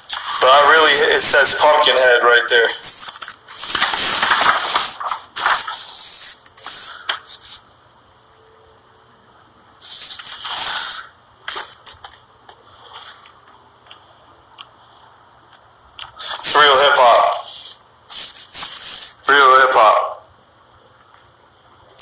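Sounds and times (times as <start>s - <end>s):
notebook pages rustling: 3.0s - 5.8s.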